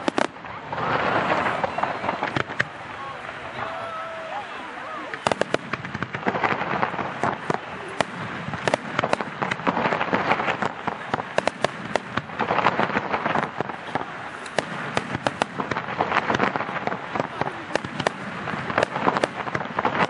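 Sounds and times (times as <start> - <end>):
steady rush of noise: 0.0 - 20.0
firework shells bursting: 5.1 - 20.0.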